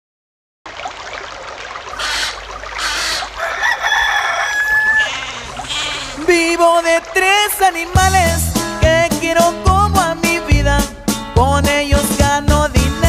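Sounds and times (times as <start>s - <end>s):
rooster crowing: 2.0s - 6.3s
music: 6.4s - 13.0s.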